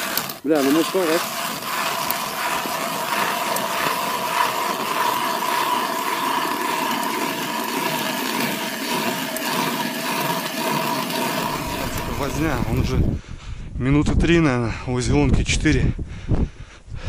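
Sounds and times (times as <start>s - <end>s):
ice auger grinding through ice: 0.0s - 13.2s.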